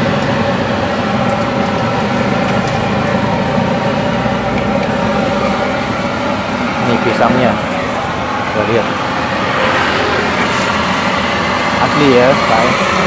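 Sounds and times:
mechanical hum with held tones: 0.0 - 13.0.

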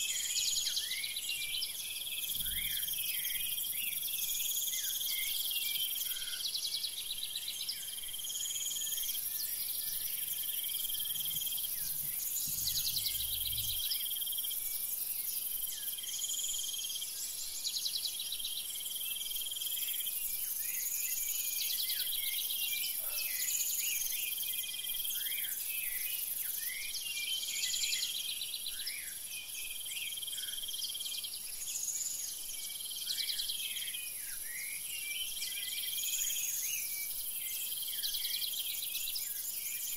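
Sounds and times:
high-pitched insect hiss: 8.0 - 17.1
birds calling: 10.8 - 14.0.

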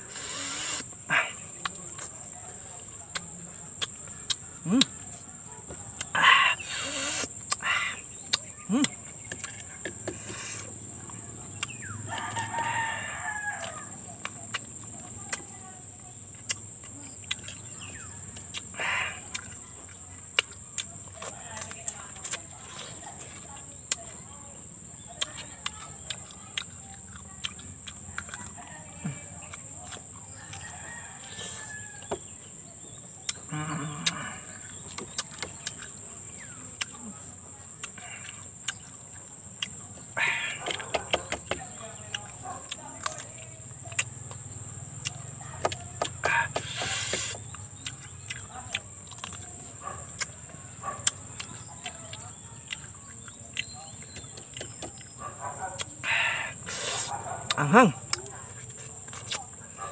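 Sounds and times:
high-pitched insect buzz: 0.0 - 1.2, 6.1 - 8.0, 46.2 - 47.5
man biting and chewing fruit: 0.0 - 59.9
sharp clicks from eating: 2.9 - 5.0, 5.7 - 12.8, 13.5 - 24.3, 25.0 - 37.1, 37.8 - 59.8
rooster crowing: 12.0 - 14.1, 30.3 - 32.3.

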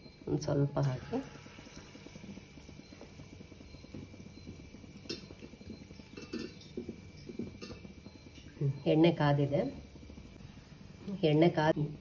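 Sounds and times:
batter sizzling in hot oil: 0.0 - 12.0
oil popping: 0.8 - 11.2.

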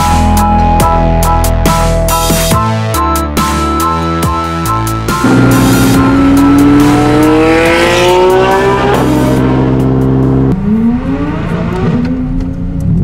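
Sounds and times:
sports car engine accelerating: 5.2 - 13.0.

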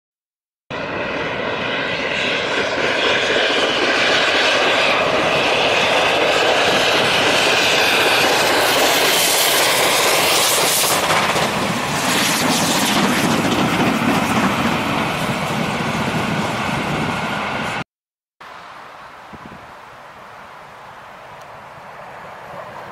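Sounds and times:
steam locomotive exhaust roar: 0.7 - 17.8, 21.3 - 22.9
coaches rumbling on rails: 0.8 - 17.8.

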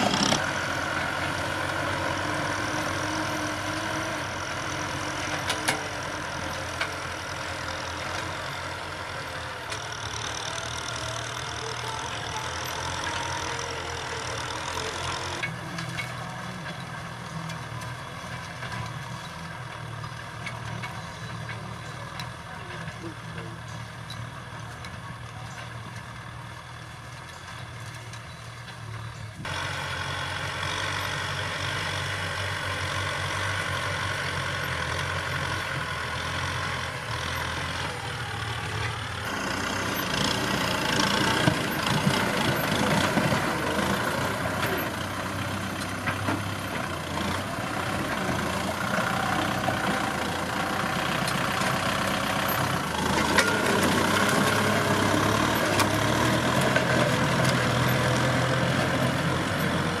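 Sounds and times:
plough scraping soil: 0.0 - 0.5
diesel tractor engine: 0.0 - 60.0.

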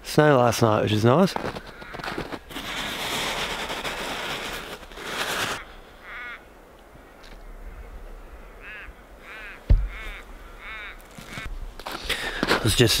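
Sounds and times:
snow crunched by hand: 1.2 - 5.6, 11.0 - 13.0
crow cawing: 1.5 - 2.9, 5.5 - 6.5, 7.1 - 11.5.

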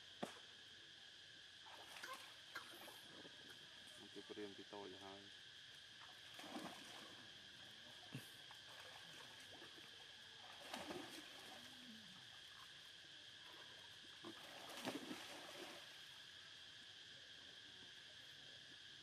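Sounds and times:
steady high hum: 0.0 - 19.0
pool water splashing: 1.7 - 3.7, 6.0 - 12.8, 13.4 - 16.1.

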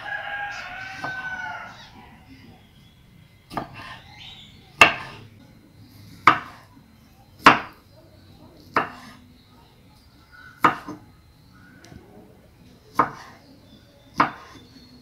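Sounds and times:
knife chopping on wooden board: 3.5 - 4.0, 4.8 - 5.2, 6.2 - 6.6, 7.4 - 7.8, 8.7 - 9.2, 10.6 - 11.0, 12.9 - 13.4, 14.1 - 14.6.

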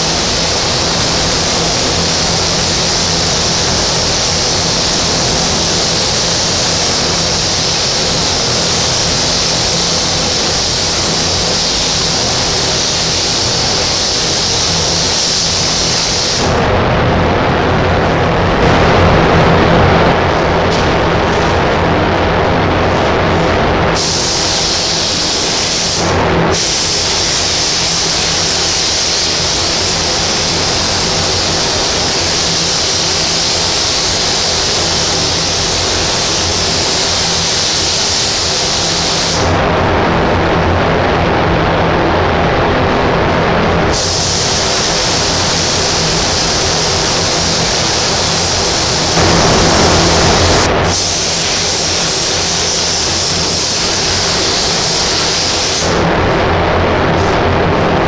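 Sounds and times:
spray gun hissing: 0.0 - 16.5, 24.0 - 39.5, 43.9 - 56.0
steady low hum: 0.0 - 58.0.

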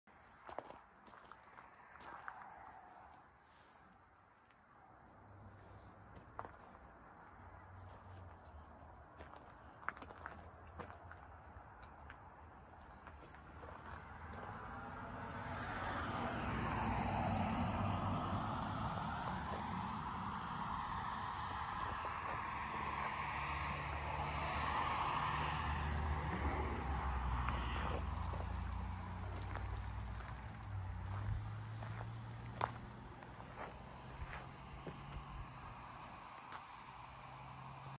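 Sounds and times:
crickets chirping: 0.1 - 37.9
footsteps on gravel: 0.2 - 3.8, 5.6 - 7.0, 9.2 - 15.0, 19.0 - 35.5
engine hum: 12.7 - 37.9.

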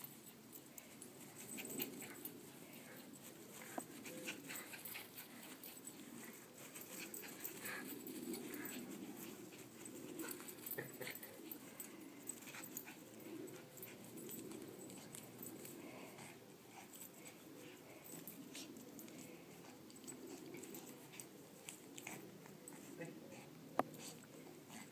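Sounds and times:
low background noise: 0.0 - 24.9
dog playing: 0.8 - 24.9.

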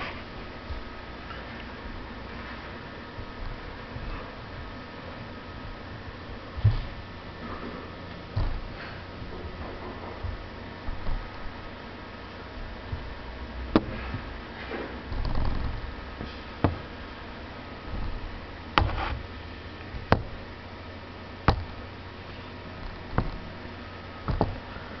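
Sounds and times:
wooden blocks scraping: 18.8 - 19.3.

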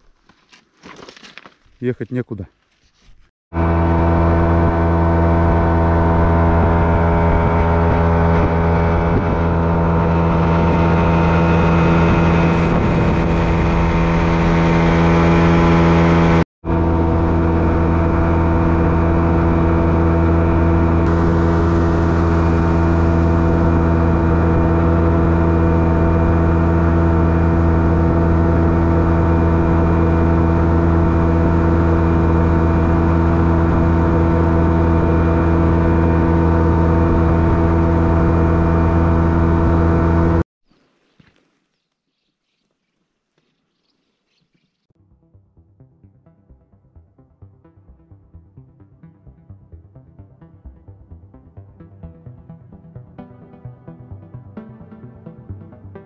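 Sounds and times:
boat motor droning: 3.5 - 40.4.

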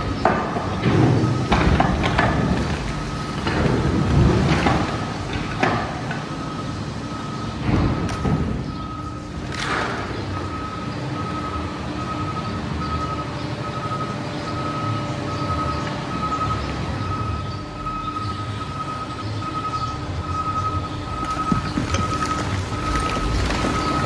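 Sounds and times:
heavy diesel engine rumble: 0.0 - 24.0
backup alarm beeping: 6.3 - 9.3, 10.3 - 24.0
grapple packing trash: 21.3 - 24.0.

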